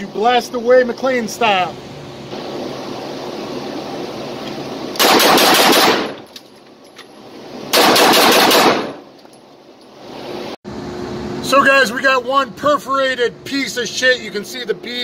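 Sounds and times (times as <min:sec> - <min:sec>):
pistol shots echoing: 0:05.0 - 0:06.2, 0:07.7 - 0:09.0.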